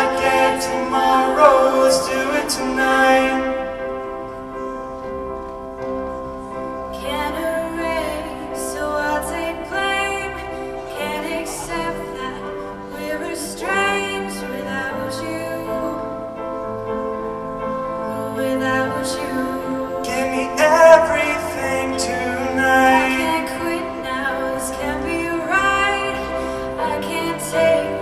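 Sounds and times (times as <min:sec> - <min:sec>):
sustained backing chords: 0:00.0 - 0:28.0
woman singing into a microphone: 0:06.9 - 0:16.3, 0:18.0 - 0:28.0.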